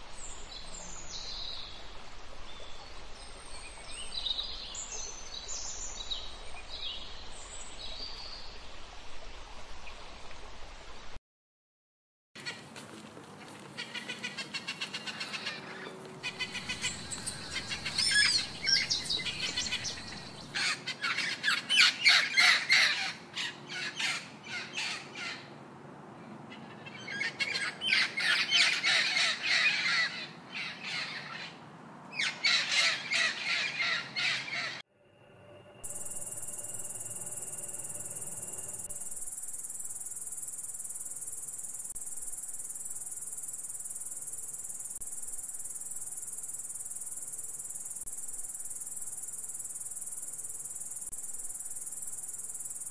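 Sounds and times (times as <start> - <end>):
high-pitched insect trill: 16.4 - 20.6, 35.8 - 52.9.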